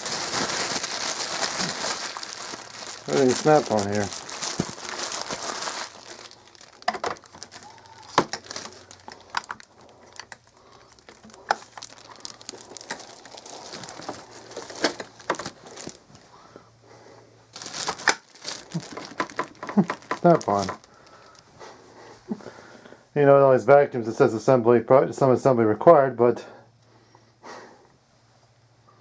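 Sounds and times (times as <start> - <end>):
plastic bags crinkling: 0.0 - 16.5, 17.5 - 21.5.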